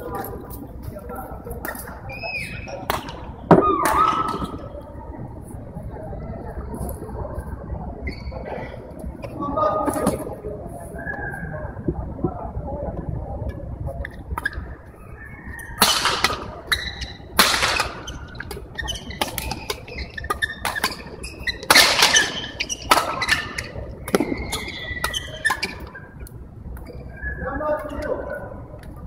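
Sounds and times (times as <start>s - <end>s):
rackets hitting shuttlecock: 15.8s - 25.8s
sneakers squeaking on court: 16.7s - 26.0s.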